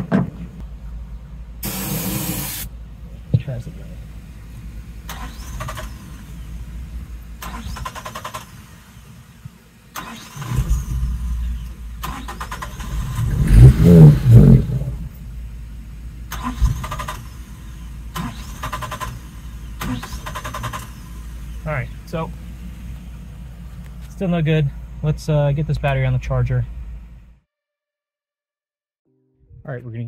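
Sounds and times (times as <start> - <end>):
engine sputtering: 0.6 - 27.3
engine starter cranking: 5.0 - 6.5, 7.4 - 9.1, 9.9 - 15.2, 16.3 - 21.6.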